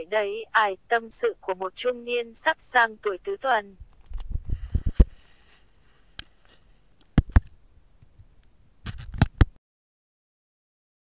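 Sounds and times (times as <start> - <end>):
sharp clicks and knocks: 7.0 - 9.6.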